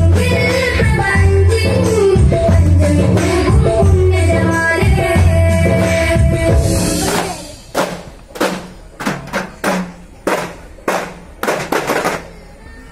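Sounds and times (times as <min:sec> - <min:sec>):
frame drum beats: 0:06.0 - 0:12.4.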